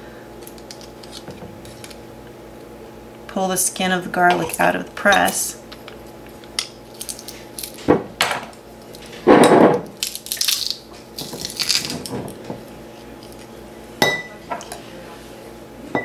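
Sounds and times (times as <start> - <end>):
garlic clove crunching: 6.4 - 7.9, 9.8 - 12.1.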